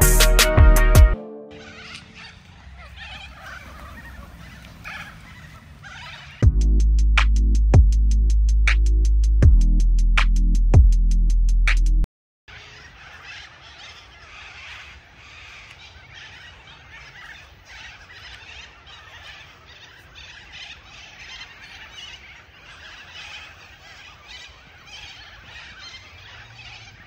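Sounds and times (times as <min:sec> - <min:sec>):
birds chirping and calling: 0:01.5 - 0:06.5, 0:12.5 - 0:27.0.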